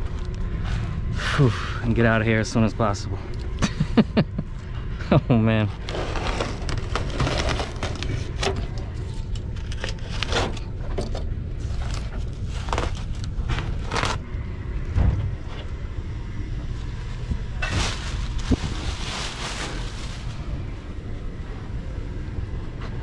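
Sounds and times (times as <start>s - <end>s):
steady low hum: 0.0s - 23.0s
insulation tearing and crackling: 5.8s - 10.9s, 11.6s - 14.4s, 17.1s - 20.5s.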